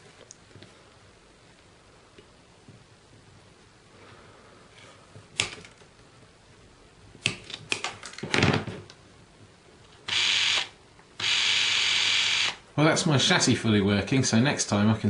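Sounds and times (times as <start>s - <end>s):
loud steady hiss: 10.0s - 14.9s.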